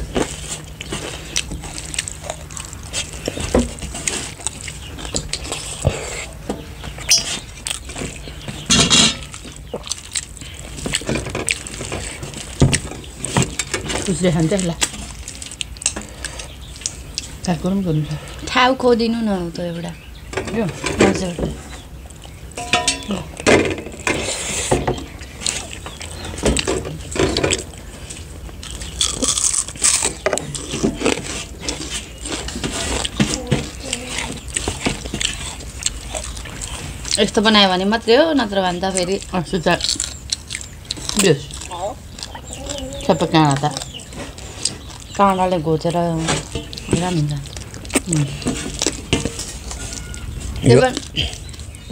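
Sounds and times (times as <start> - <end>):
chewing mouth clicks and smacks: 0.6 - 3.4, 4.0 - 5.8, 7.1 - 8.3, 9.3 - 12.6, 27.5 - 31.1, 33.8 - 37.2, 38.9 - 42.8, 46.7 - 50.3, 50.9 - 51.9
fingers scraping food on metal plates: 20.3 - 51.9.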